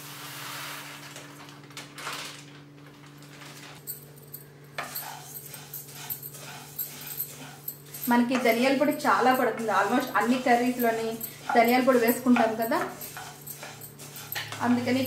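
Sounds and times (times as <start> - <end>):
spatula scraping seeds in pan: 4.8 - 15.0.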